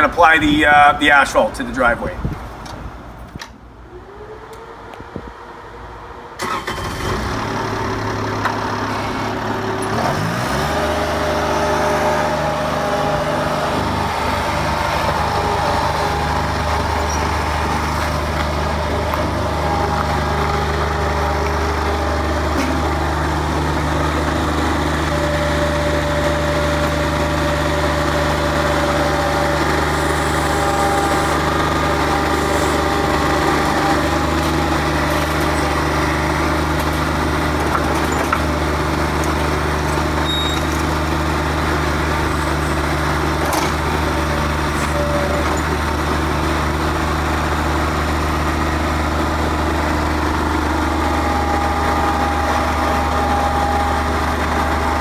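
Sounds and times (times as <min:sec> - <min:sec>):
diesel engine running: 0:00.0 - 0:55.0
engine starter cranking: 0:06.4 - 0:07.5.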